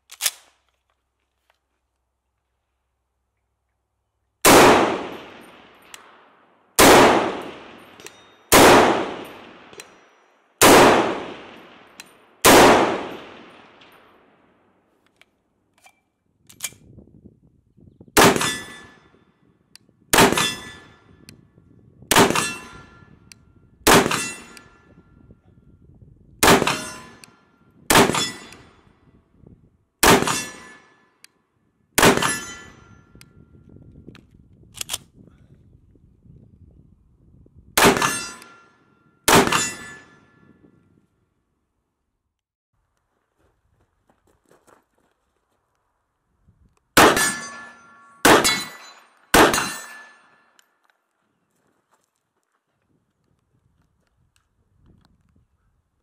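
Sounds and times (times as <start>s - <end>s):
rifle shots echoing: 4.4s - 10.0s, 10.6s - 14.6s, 18.2s - 19.0s, 20.1s - 21.0s, 22.1s - 23.0s, 23.9s - 24.8s, 26.4s - 28.8s, 30.0s - 30.9s, 32.0s - 32.7s, 37.8s - 38.7s, 39.3s - 40.2s, 47.0s - 50.4s.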